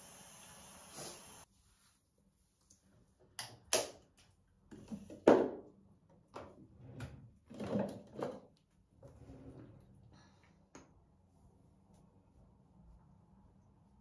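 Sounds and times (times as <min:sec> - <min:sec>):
toiletries knocking and clattering: 0:07.5 - 0:08.5.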